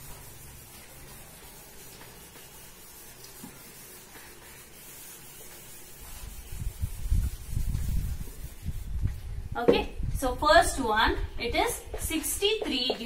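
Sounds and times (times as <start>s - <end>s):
eraser rubbing whiteboard: 0.0s - 9.1s.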